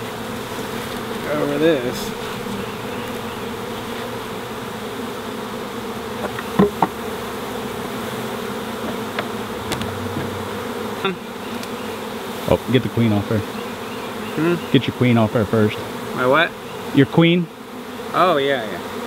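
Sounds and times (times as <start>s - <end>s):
bees buzzing: 0.0s - 19.0s
sharp knocks: 6.2s - 7.0s, 8.8s - 10.7s.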